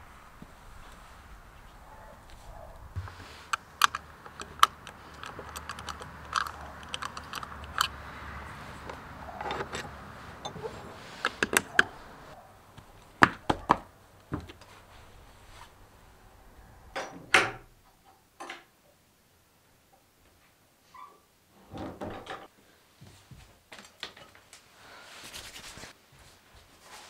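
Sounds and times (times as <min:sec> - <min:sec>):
padlock clicks and rattles: 0:03.4 - 0:08.1, 0:08.8 - 0:12.2.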